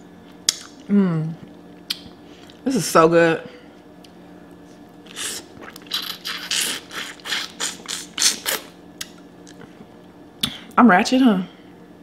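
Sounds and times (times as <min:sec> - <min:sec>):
wet mouth eating sounds: 0:05.0 - 0:09.7.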